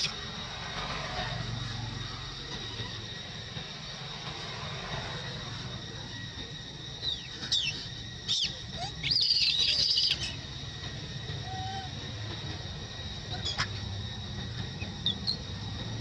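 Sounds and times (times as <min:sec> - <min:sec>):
monkeys squealing: 0:07.0 - 0:10.4, 0:11.4 - 0:12.0, 0:13.3 - 0:13.8.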